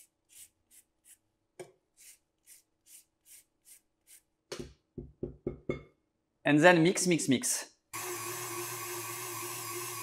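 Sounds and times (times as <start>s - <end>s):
zester scraping lemon peel: 0.0s - 1.2s, 2.0s - 4.3s.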